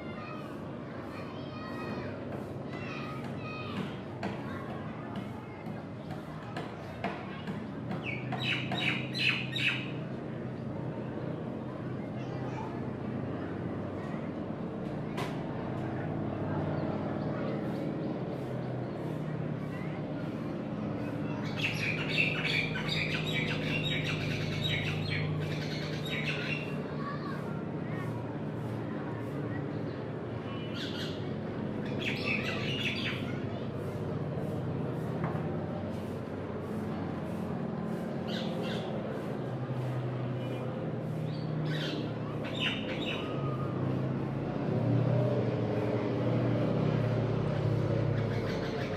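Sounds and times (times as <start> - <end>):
birds squawking and chattering: 7.9 - 10.0, 21.0 - 27.2, 30.5 - 34.0, 37.9 - 39.0, 40.4 - 43.7, 48.1 - 48.9.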